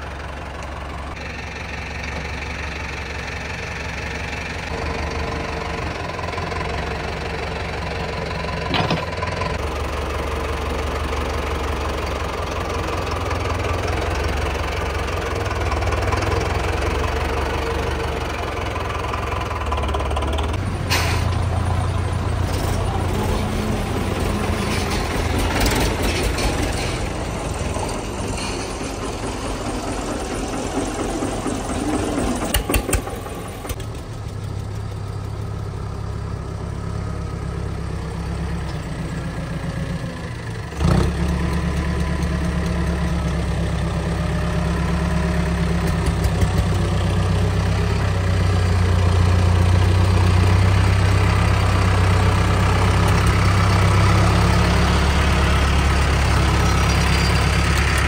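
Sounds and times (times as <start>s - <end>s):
diesel tractor engines droning: 0.0s - 58.0s.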